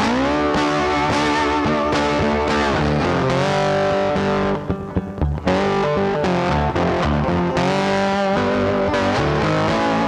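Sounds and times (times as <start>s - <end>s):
electric guitar music: 0.0s - 10.0s.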